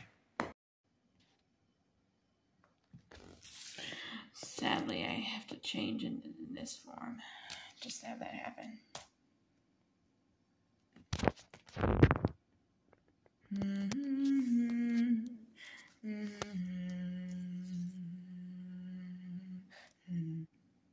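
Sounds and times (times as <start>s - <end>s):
person humming low notes: 13.4s - 20.6s.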